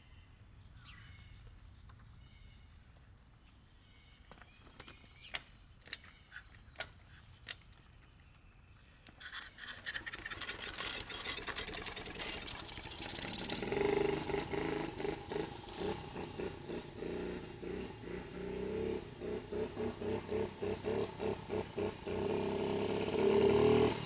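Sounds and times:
dirt bike engine revving: 10.5s - 24.0s.

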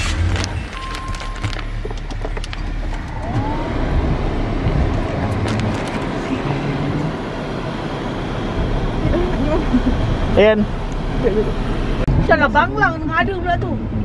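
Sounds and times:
car engine and road rumble: 0.0s - 14.0s.

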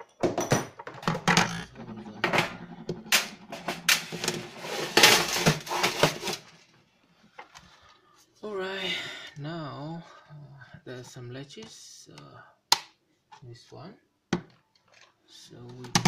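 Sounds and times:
small parts rattling into metal tin: 3.8s - 6.5s.

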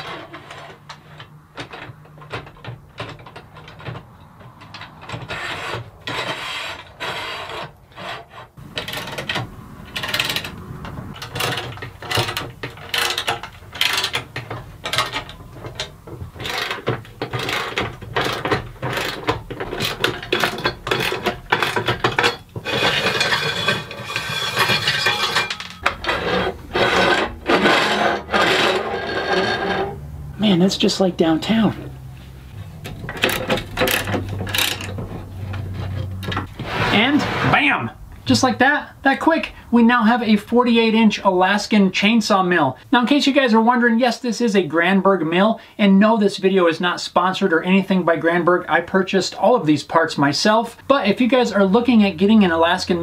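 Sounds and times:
metal scraping and knocking: 0.0s - 38.4s.

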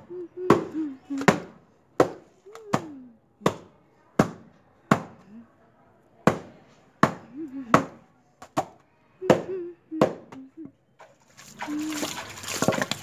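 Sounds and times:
wooden paddle slapping wet mat: 11.0s - 13.0s
wet rustle of mat scrubbed by hand: 11.2s - 13.0s.

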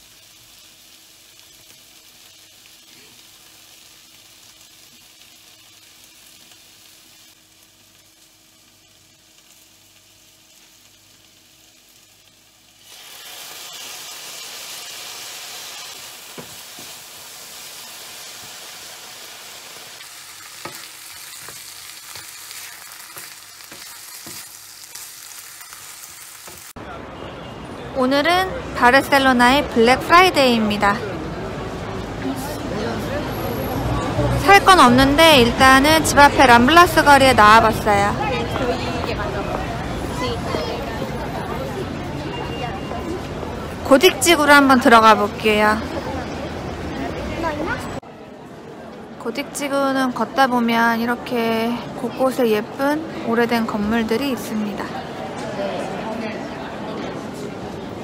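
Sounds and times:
meat sizzling in frying pan: 0.0s - 26.8s.

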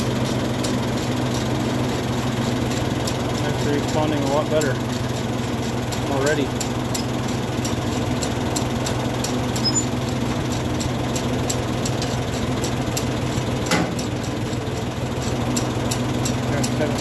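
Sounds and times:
tractor engine idling: 0.0s - 17.0s
short sliding tone: 9.6s - 10.0s
light regular ticking: 14.0s - 17.0s.

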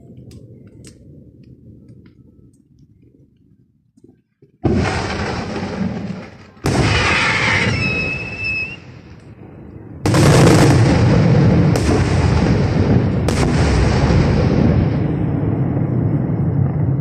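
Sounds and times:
firework booms with rumbling echo: 4.6s - 17.0s
firework whistle: 6.7s - 9.0s.

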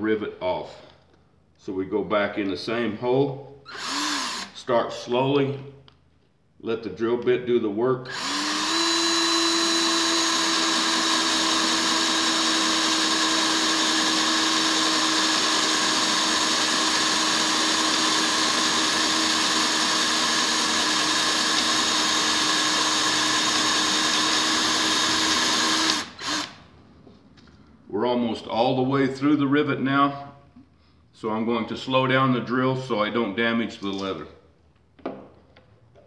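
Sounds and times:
cordless drill cutting metal: 3.7s - 4.6s, 8.1s - 26.6s.

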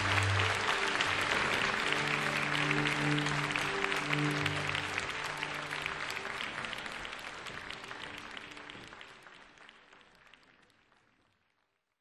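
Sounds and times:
orchestra held notes: 0.0s - 6.8s
audience applauding: 0.0s - 11.6s.

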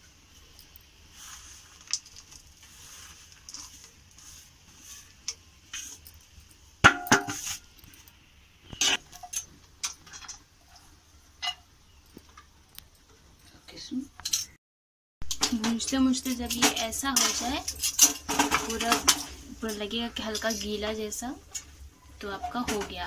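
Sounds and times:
metal spatula scraping a pan: 2.6s - 7.9s, 8.7s - 11.6s, 16.3s - 22.9s
sharp metal clangs: 5.8s - 10.4s.

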